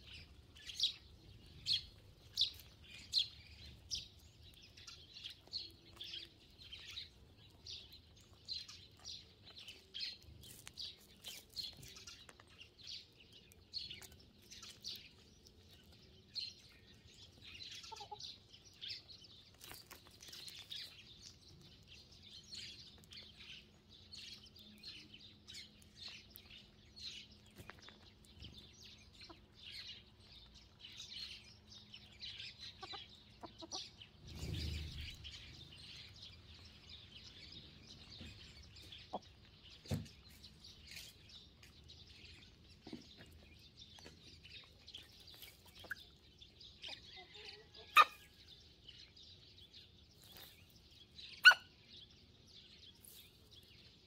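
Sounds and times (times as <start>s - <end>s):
sparrows chirping: 0.0s - 54.0s
hens clucking softly: 32.7s - 34.0s.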